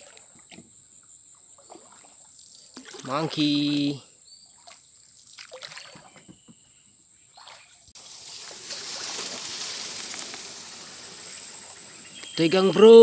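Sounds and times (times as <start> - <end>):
water splashing around boat: 0.0 - 0.8, 1.4 - 6.3, 7.3 - 12.8
steady high hiss: 8.0 - 13.0.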